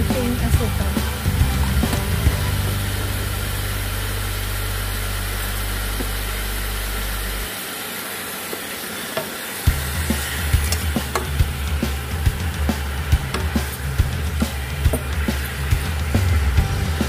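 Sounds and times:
steady low hum: 0:00.0 - 0:07.5, 0:09.7 - 0:17.0
vegetables sizzling in a pan: 0:00.0 - 0:16.9.

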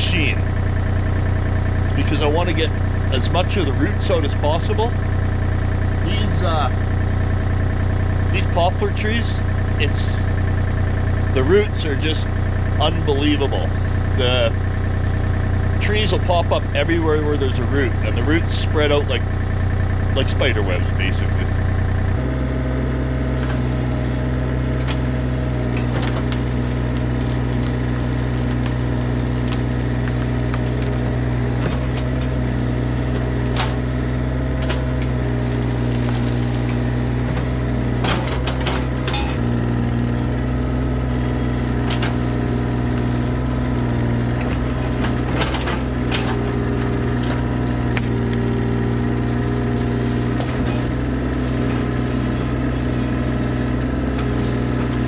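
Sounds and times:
excavator diesel engine running: 0:00.0 - 0:55.0
wood and roots cracking: 0:24.8 - 0:40.5.

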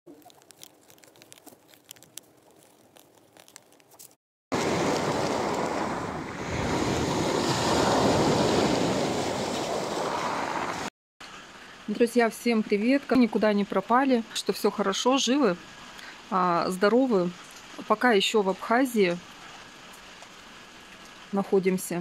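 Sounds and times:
waves breaking on pebble beach: 0:04.5 - 0:10.9.

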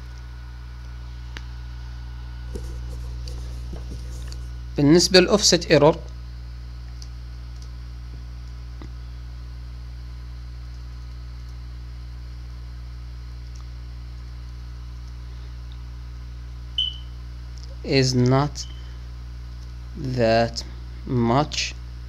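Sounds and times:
low electrical hum: 0:00.0 - 0:22.0.

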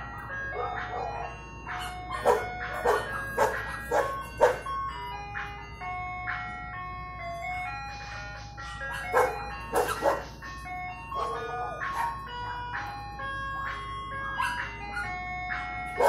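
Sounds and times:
ice cream truck jingle: 0:00.0 - 0:16.0
dogs barking: 0:00.4 - 0:04.8, 0:08.6 - 0:12.9, 0:14.2 - 0:16.0.

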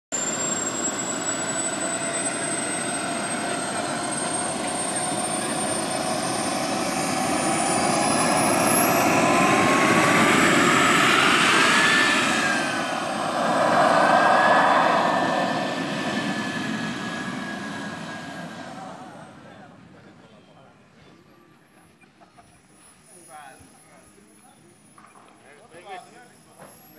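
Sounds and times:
gas turbine whining: 0:00.2 - 0:20.4
lower whine: 0:00.2 - 0:20.7.

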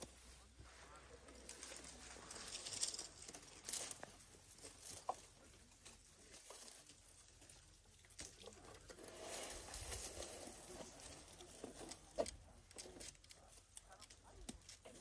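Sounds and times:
dry grass rustling and crackling: 0:00.0 - 0:15.0
twigs snapping: 0:11.1 - 0:15.0.

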